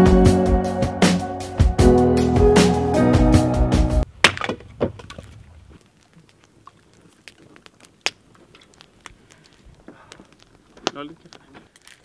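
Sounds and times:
soft crunches: 4.6 - 12.0.

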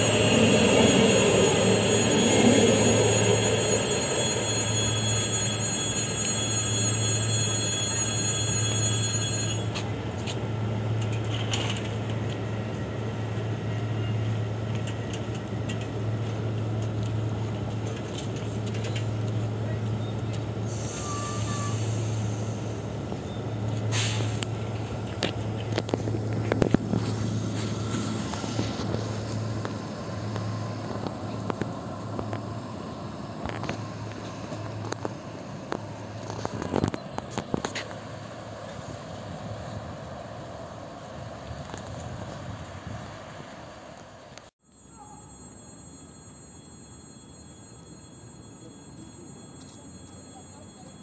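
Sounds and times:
train wheels rolling on rails: 0.0 - 44.5
low rumble of vehicle noise: 8.3 - 45.3
brief hiss: 23.9 - 24.5.

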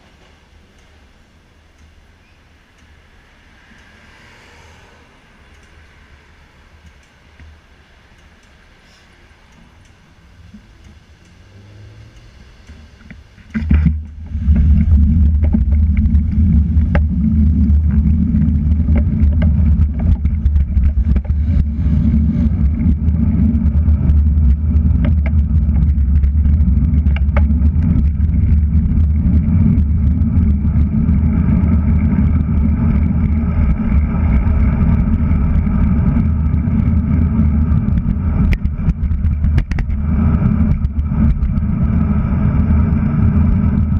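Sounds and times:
faint street sound: 0.0 - 13.8
loud low rumble: 9.2 - 43.9
wind buffeting microphone: 13.3 - 43.9.

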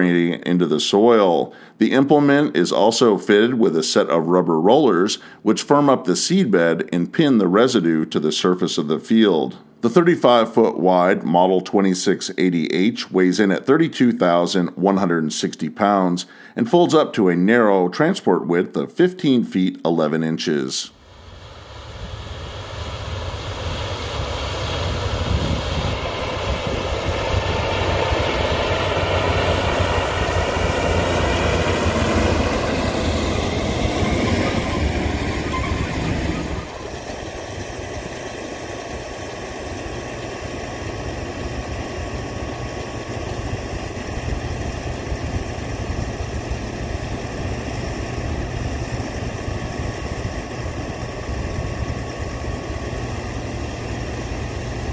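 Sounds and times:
tractor diesel engine under load: 25.0 - 54.9.

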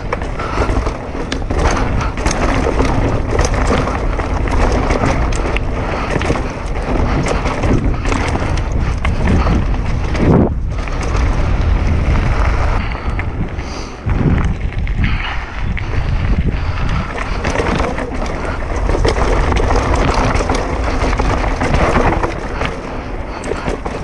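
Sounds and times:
bike rattling over bumps: 0.0 - 24.0
bike tyre noise: 0.0 - 24.0
wind rushing over microphone: 0.0 - 24.0.

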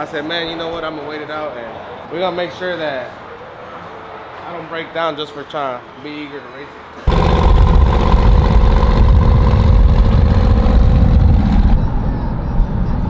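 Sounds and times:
pickup engine running loud: 7.1 - 11.9.

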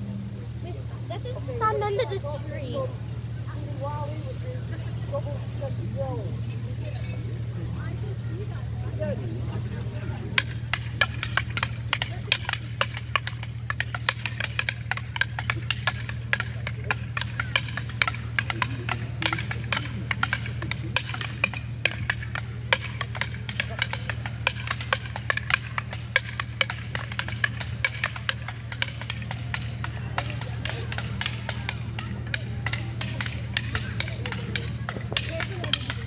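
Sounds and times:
steady low hum: 0.0 - 36.0
fighting sticks clacking: 9.5 - 36.0.

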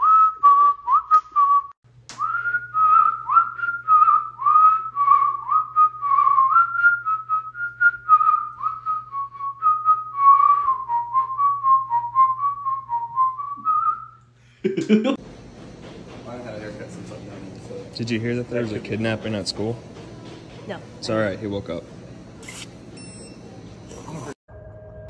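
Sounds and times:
person whistling a tune: 0.0 - 14.2.

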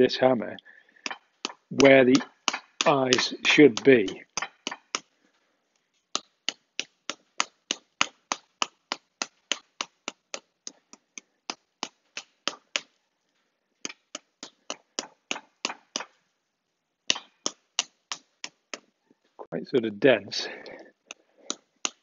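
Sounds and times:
hammer tapping on metal wire: 1.0 - 5.1, 6.1 - 12.9, 13.8 - 16.2, 17.1 - 18.9, 21.1 - 22.0.

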